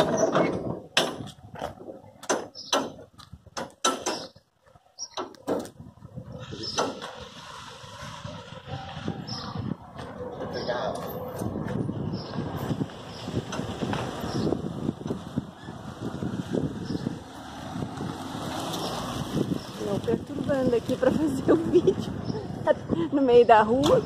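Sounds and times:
door squeaks: 0:00.0 - 0:00.7
metal lock rods clanking: 0:00.0 - 0:04.4
outdoor background noise: 0:00.0 - 0:24.0
wind buffeting microphone: 0:00.0 - 0:24.0.

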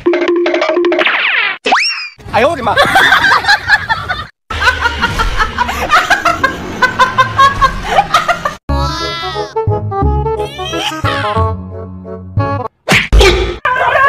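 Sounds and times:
woman laughing hard: 0:02.8 - 0:09.4, 0:10.5 - 0:11.4, 0:13.6 - 0:14.0.

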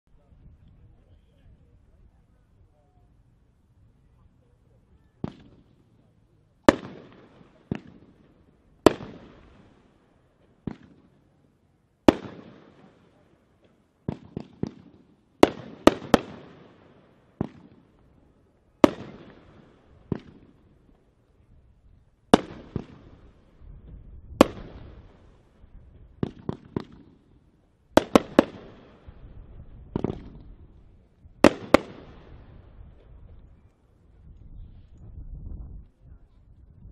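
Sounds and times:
firework bangs: 0:05.2 - 0:06.0, 0:06.6 - 0:11.2, 0:12.0 - 0:18.0, 0:18.7 - 0:21.1, 0:22.2 - 0:33.1.

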